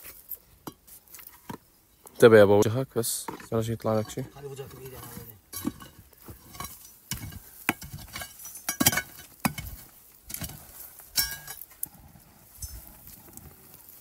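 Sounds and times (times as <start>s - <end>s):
stones clinking against rock: 2.6s - 11.9s.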